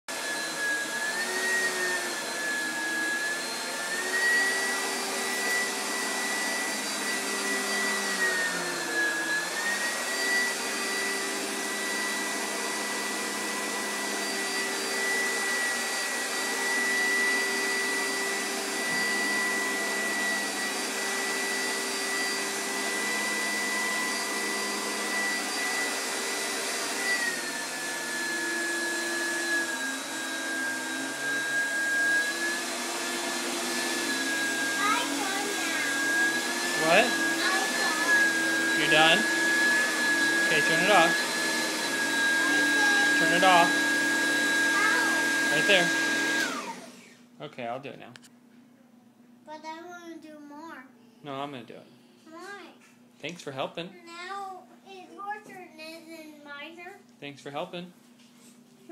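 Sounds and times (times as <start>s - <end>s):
vacuum cleaner running on carpet: 0.1s - 47.2s.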